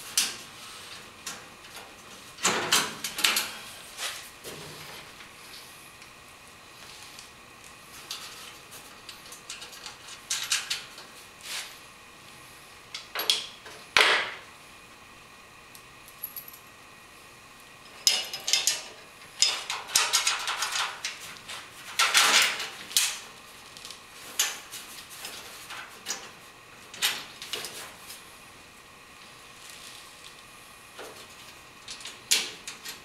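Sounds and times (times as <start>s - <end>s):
metal hardware clinking and rattling: 17.9s - 21.2s.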